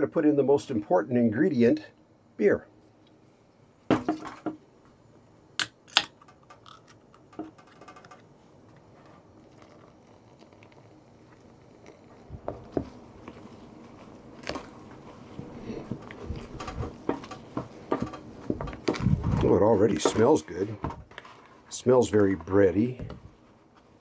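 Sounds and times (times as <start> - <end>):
beer can opening: 5.6 - 11.0
beer pouring with crackle: 6.2 - 24.0.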